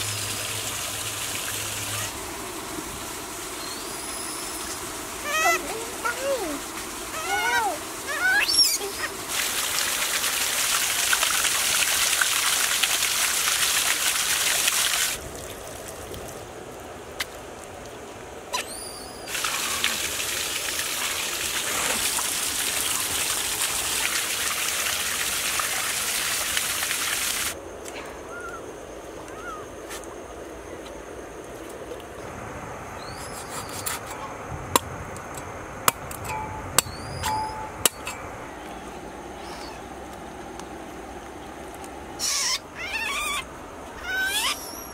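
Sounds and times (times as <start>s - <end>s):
birds chirping: 32.2s - 34.5s, 36.2s - 40.4s
steady rushing noise: 32.2s - 42.2s.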